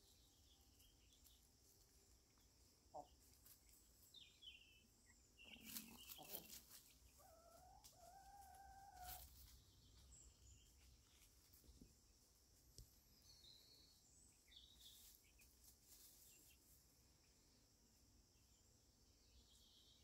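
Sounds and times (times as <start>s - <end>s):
chicken cheeps and calls: 0.1s - 11.6s
birds scratching in leaf litter: 5.5s - 7.1s, 8.5s - 9.7s.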